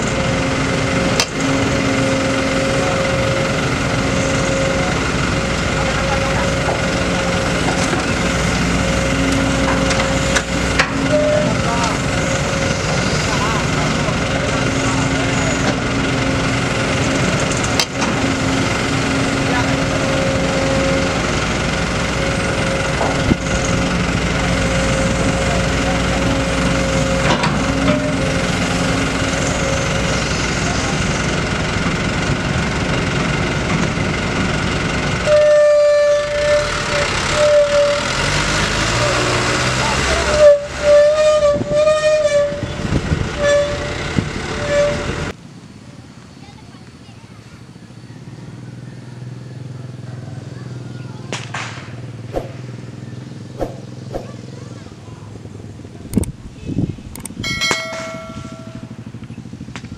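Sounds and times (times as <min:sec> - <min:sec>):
excavator engine and hydraulics: 0:00.0 - 0:59.9
vehicle horn blasts: 0:35.2 - 0:38.0.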